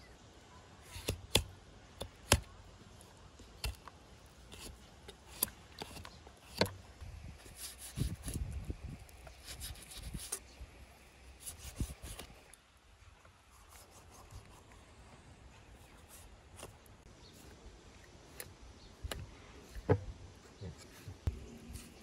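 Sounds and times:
knife cutting and scraping skin: 0.9 - 2.5, 3.4 - 6.8, 7.4 - 8.5, 9.2 - 10.4, 11.4 - 12.5, 13.5 - 14.7.

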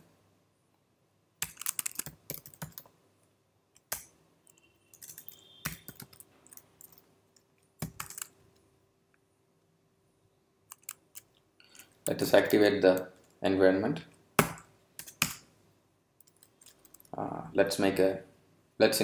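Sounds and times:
typing on keyboard: 1.4 - 2.9, 3.8 - 7.0, 7.8 - 8.4, 10.7 - 13.1, 15.0 - 15.4.

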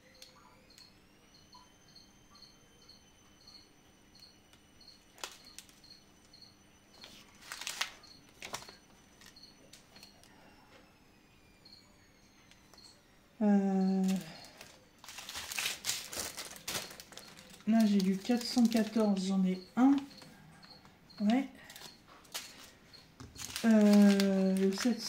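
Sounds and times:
faint high chirp: 0.0 - 7.3
plastic bags rustling: 7.0 - 10.0, 14.0 - 25.0.

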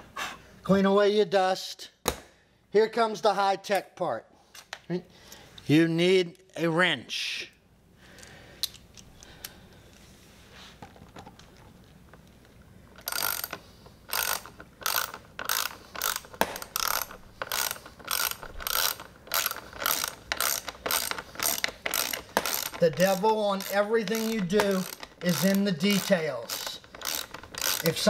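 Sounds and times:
ratchet wrench clicking: 13.0 - 28.0.

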